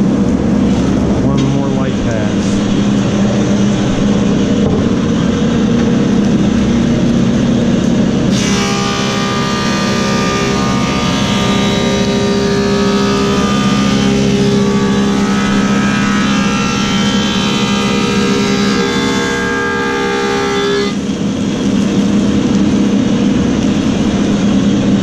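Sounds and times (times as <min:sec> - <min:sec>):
planer running: 0:00.0 - 0:24.7
wood being planed: 0:08.3 - 0:21.0.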